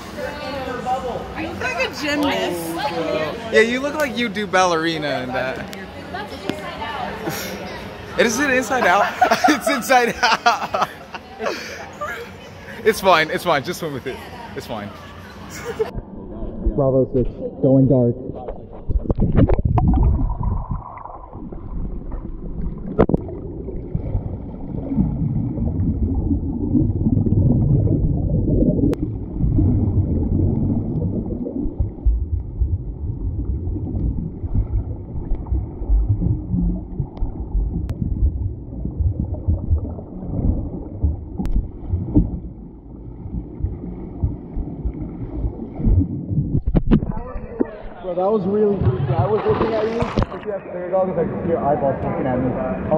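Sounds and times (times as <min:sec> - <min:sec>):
underwater churning water rumble: 0:15.9 - 0:47.9.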